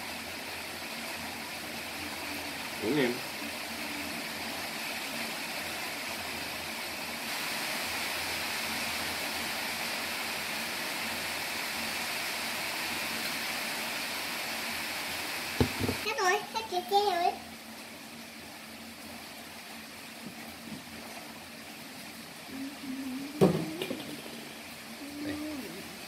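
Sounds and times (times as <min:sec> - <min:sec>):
background hiss: 0:00.0 - 0:26.0
faint hum: 0:00.8 - 0:07.8, 0:19.4 - 0:26.0.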